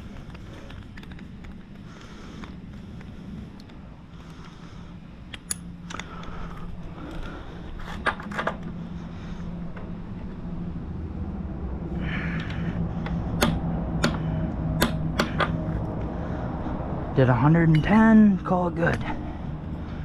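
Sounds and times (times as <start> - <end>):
steady low hum: 0.0 - 20.0
torque wrench clicks: 5.3 - 6.1.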